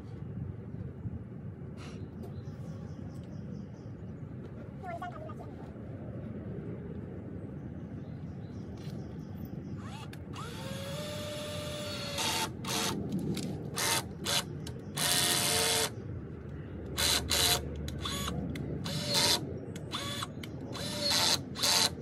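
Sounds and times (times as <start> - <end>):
power drill bursts: 9.8 - 13.0, 13.8 - 15.9, 17.0 - 18.3, 18.9 - 22.0.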